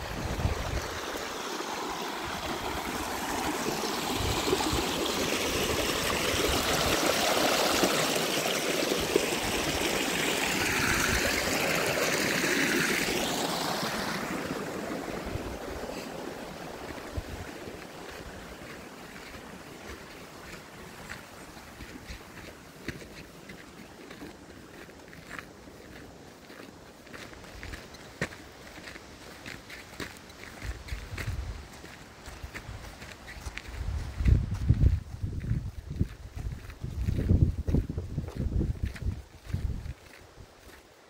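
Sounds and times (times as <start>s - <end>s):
wind rumble on microphone: 0.0s - 1.1s, 30.6s - 31.7s, 32.5s - 40.6s
creek running over rocks: 0.0s - 41.0s.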